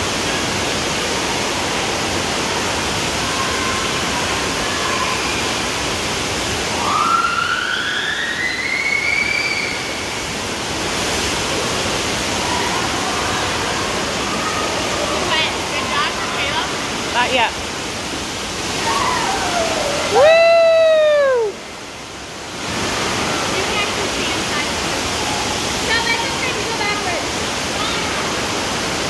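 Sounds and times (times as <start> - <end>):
water rushing down slide: 0.0 - 29.0
long rising cry: 18.8 - 21.6.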